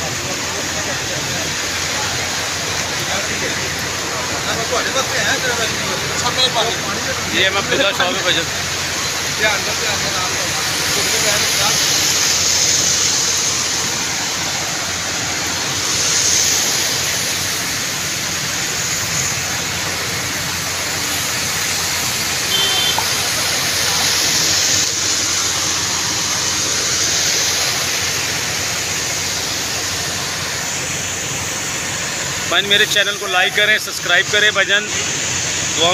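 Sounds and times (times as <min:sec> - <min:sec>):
floodwater flowing along street: 0:00.0 - 0:35.9
heavy rain: 0:00.0 - 0:35.9.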